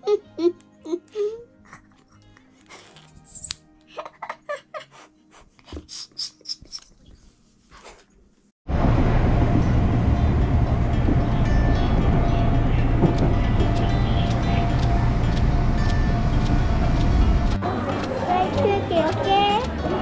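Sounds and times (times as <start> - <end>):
faint background music: 0.0 - 5.6, 10.3 - 20.0
small child giggling: 3.9 - 5.1
loud outdoor rumbling: 8.7 - 20.0.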